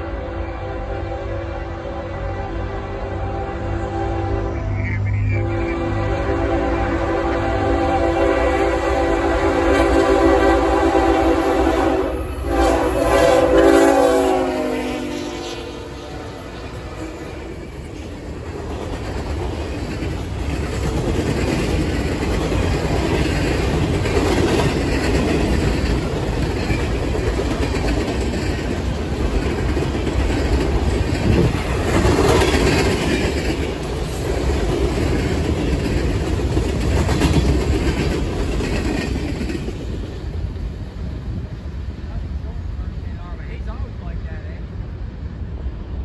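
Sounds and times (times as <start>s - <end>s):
freight train rolling past: 0.0s - 46.0s
train wheel clatter: 16.6s - 41.6s.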